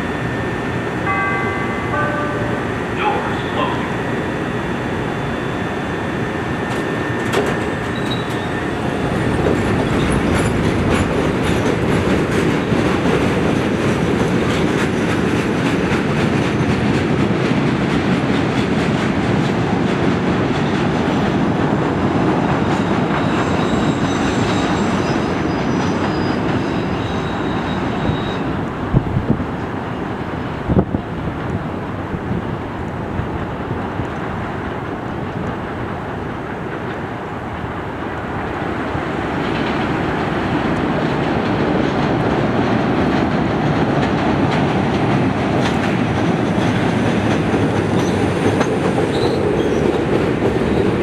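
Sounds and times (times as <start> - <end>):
train rumbling on elevated track: 0.0 - 51.0
high wheel squeal: 2.9 - 11.1, 22.5 - 28.6, 49.1 - 49.9.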